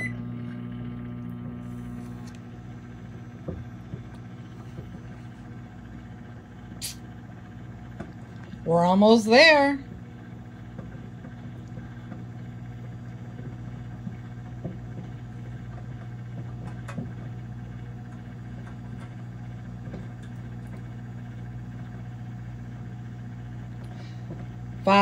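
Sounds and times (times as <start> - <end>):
microwave oven humming: 0.0 - 25.0.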